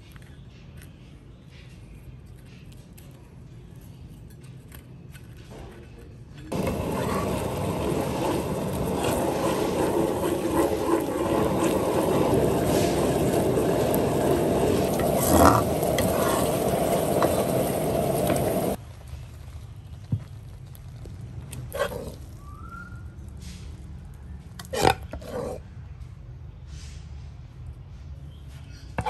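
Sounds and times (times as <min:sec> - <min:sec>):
sauce bubbling and sizzling: 0:06.5 - 0:21.4.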